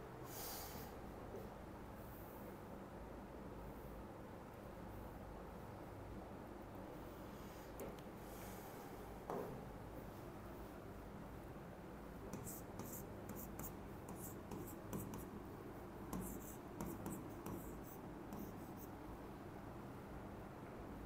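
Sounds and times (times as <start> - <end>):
low steady hum: 0.0 - 21.0
pen scratching while writing: 12.3 - 15.3, 16.1 - 18.9.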